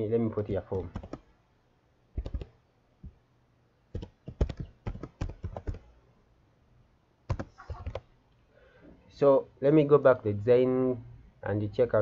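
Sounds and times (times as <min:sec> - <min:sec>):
computer keyboard typing: 0:00.9 - 0:01.3, 0:02.2 - 0:02.5, 0:03.9 - 0:05.9, 0:07.3 - 0:08.1.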